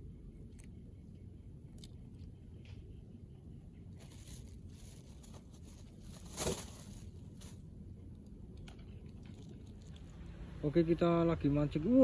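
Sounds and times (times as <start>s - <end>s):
low steady rumble: 0.0s - 12.0s
plastic bag crinkling: 4.0s - 7.6s.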